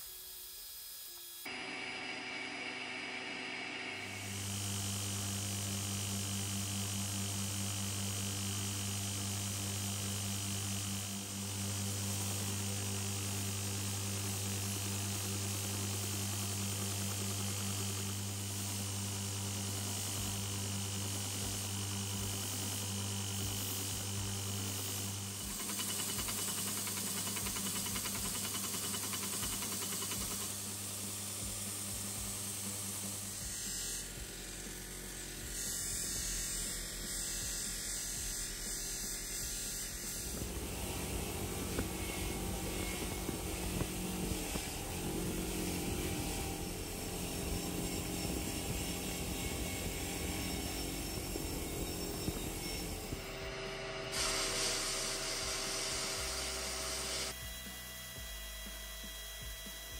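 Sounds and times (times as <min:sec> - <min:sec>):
grinding machine humming and buzzing: 0:00.0 - 0:59.9.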